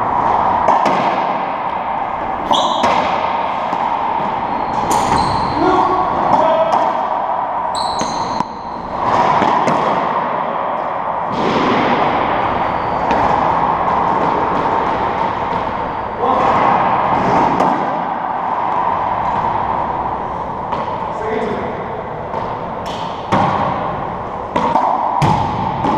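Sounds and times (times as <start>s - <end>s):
loud echoing court din: 0.0s - 25.9s
shoe squeak on hardwood floor: 4.9s - 5.6s, 7.7s - 8.5s.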